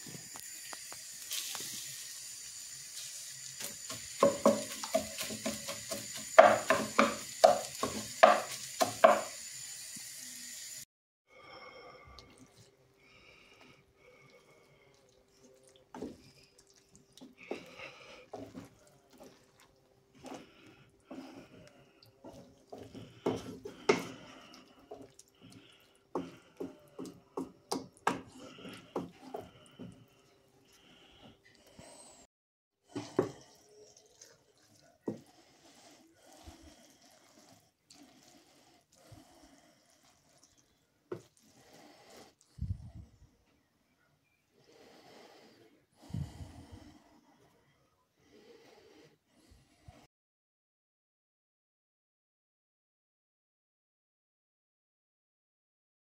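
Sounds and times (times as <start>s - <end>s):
wooden spatula scraping frying pan: 3.6s - 9.4s.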